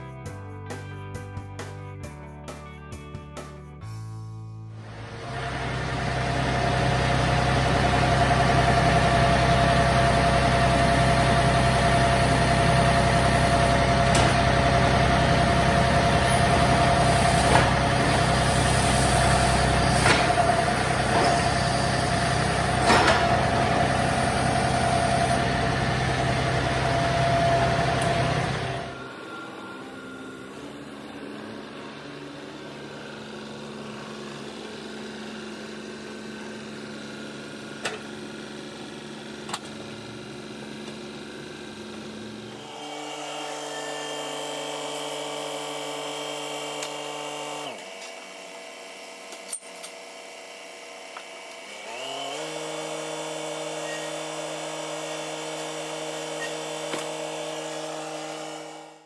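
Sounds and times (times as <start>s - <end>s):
tractor diesel engine idling: 4.8s - 42.6s.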